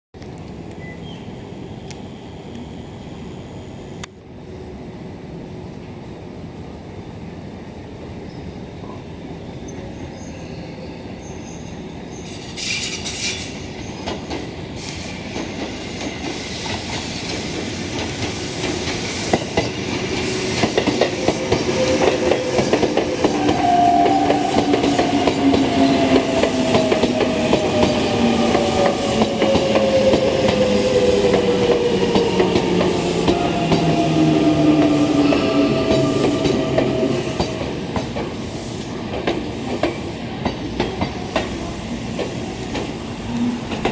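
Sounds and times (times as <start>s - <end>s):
train wheels clacking on rails: 12.2s - 43.9s.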